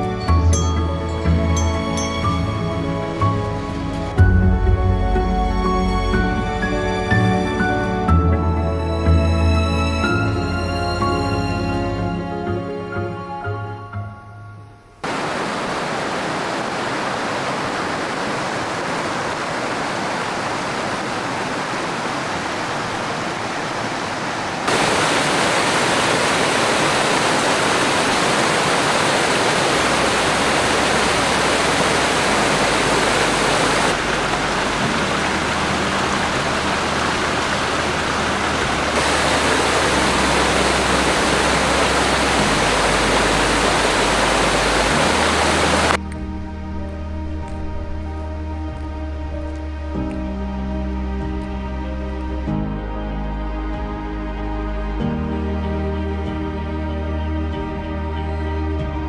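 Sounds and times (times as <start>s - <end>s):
water rushing over rocks: 15.0s - 46.0s.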